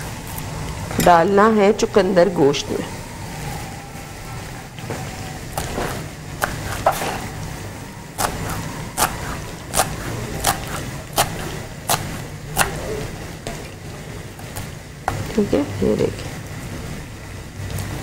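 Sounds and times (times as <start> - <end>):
low steady hum: 0.0 - 18.0
knife chopping herbs on board: 5.6 - 7.2, 8.2 - 12.9.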